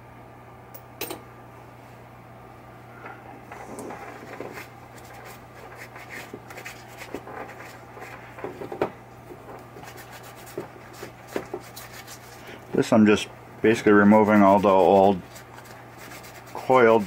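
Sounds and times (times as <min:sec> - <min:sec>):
paper towel rubbing and rustling: 0:03.5 - 0:08.7, 0:09.3 - 0:12.9, 0:13.7 - 0:17.0.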